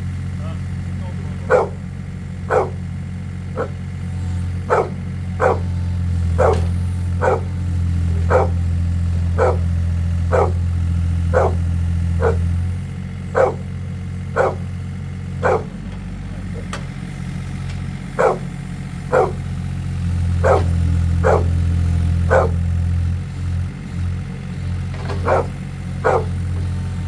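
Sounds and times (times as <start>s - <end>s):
excavator engine running: 0.0s - 27.0s
dog barking: 1.4s - 1.9s, 2.5s - 2.9s, 3.5s - 3.9s, 4.6s - 7.6s, 8.2s - 8.7s, 9.3s - 10.7s, 11.3s - 12.5s, 13.3s - 14.8s, 15.4s - 15.8s, 18.2s - 19.5s, 20.4s - 21.6s, 22.3s - 22.6s, 25.1s - 26.5s.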